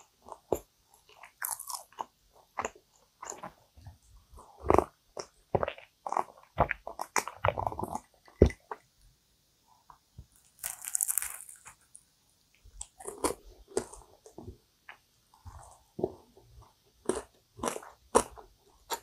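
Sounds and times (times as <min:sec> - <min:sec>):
person chewing: 0:00.0 - 0:08.8, 0:10.4 - 0:12.0, 0:12.7 - 0:19.0
person gulping drink: 0:04.5 - 0:08.8
crunchy bite into pastry: 0:10.5 - 0:11.8.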